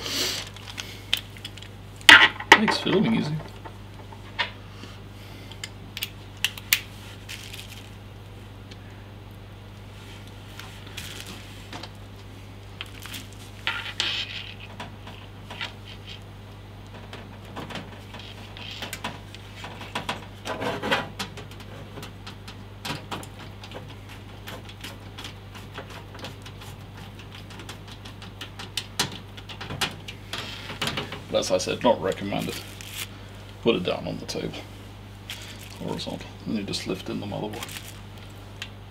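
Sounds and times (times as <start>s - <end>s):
scraping rubs: 13.4s - 14.7s.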